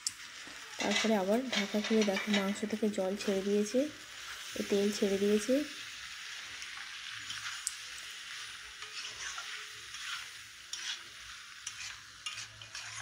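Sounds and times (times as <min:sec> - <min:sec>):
chicken sizzling in oil: 0:00.0 - 0:13.0
metal spatula scraping pan: 0:00.8 - 0:02.7, 0:07.2 - 0:07.7, 0:08.8 - 0:13.0.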